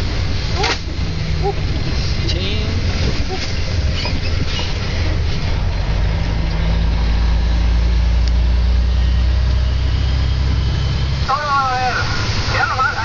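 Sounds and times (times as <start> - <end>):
diesel truck engine drone: 0.0 - 13.0.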